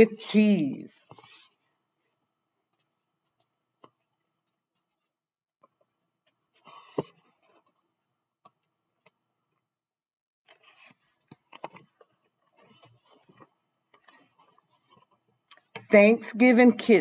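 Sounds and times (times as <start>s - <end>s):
book pages turning: 1.0s - 1.8s, 10.4s - 15.8s.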